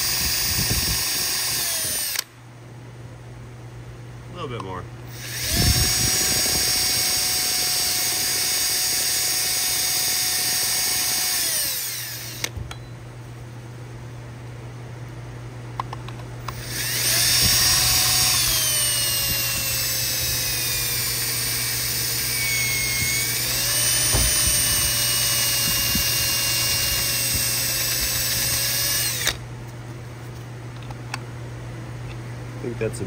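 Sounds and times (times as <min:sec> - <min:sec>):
power drill whining: 0:00.0 - 0:02.3, 0:05.1 - 0:12.6, 0:16.4 - 0:29.4.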